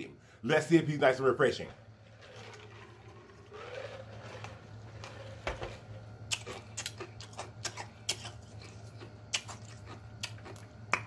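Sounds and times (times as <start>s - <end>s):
man drinking from glass mug: 2.0s - 6.0s
wet lip smacks and mouth clicks: 6.3s - 11.0s.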